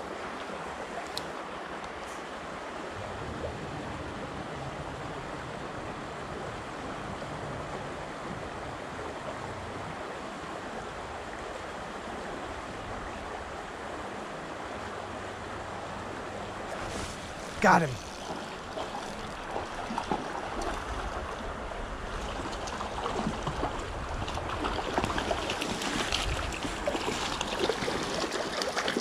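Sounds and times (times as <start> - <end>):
creek water rushing over rocks: 0.0 - 29.0.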